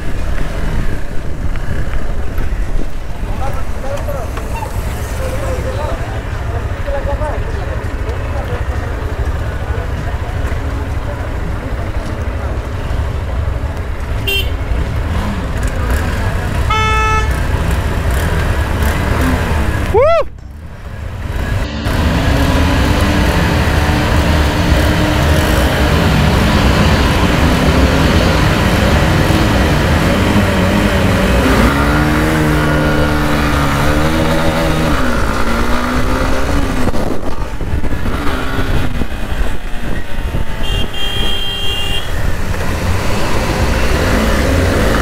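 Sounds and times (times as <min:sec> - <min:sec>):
motorcycle engine revving: 0:03.2 - 0:20.0, 0:20.6 - 0:45.0
wind rush on microphone: 0:34.3 - 0:41.2.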